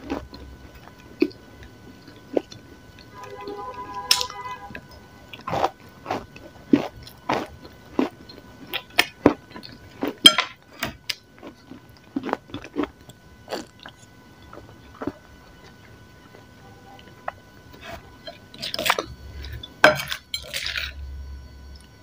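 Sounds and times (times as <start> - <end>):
crunching bites and chewing: 0.0 - 1.4, 5.4 - 15.8.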